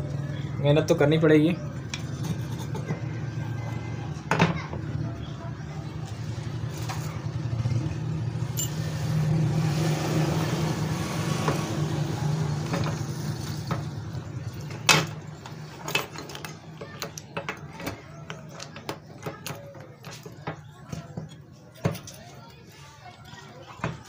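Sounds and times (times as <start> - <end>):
motorcycle engine running: 4.8 - 15.8
light metal clicks and clinks: 8.6 - 8.8.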